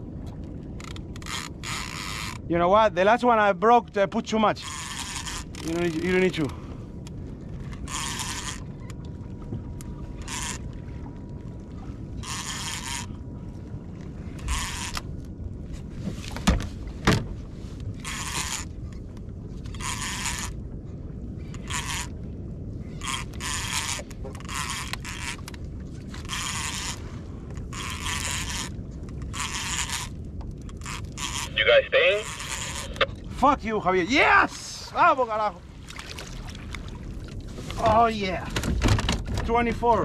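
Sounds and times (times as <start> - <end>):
fishing reel whirring: 1.2 - 2.4, 4.6 - 5.9, 7.8 - 8.7, 10.2 - 10.6, 12.2 - 13.1, 19.8 - 20.5, 21.6 - 22.1, 23.0 - 25.4, 26.3 - 27.0, 27.7 - 30.1.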